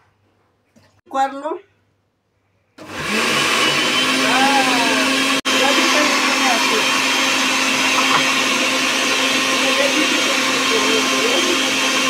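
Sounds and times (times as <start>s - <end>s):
blender running: 2.8s - 12.0s.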